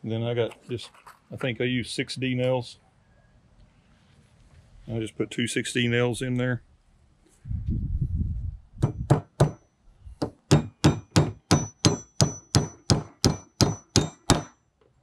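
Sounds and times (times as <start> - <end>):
hammer striking nails into metal: 8.8 - 9.6, 10.2 - 14.6.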